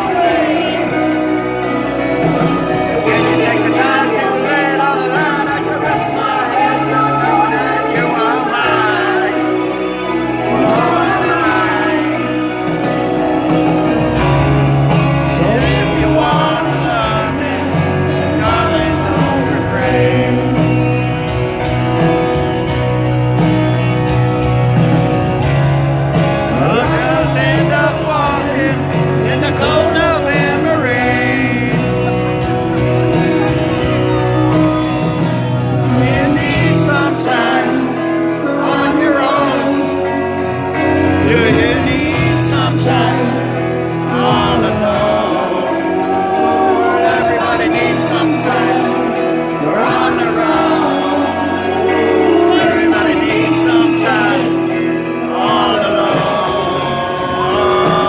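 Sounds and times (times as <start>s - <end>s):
live concert band music: 0.0s - 58.0s
man singing: 0.0s - 58.0s
piano: 0.0s - 58.0s.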